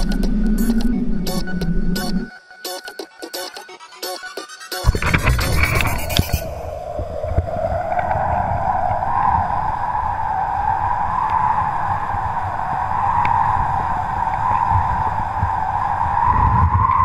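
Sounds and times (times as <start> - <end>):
wind rushing over camera: 4.9 - 17.0.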